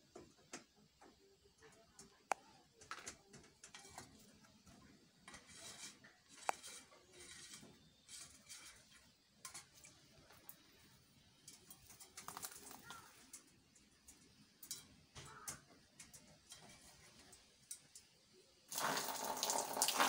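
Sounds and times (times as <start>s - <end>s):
wing fluttering: 11.8s - 13.4s
parrot splashing in water: 18.7s - 20.0s.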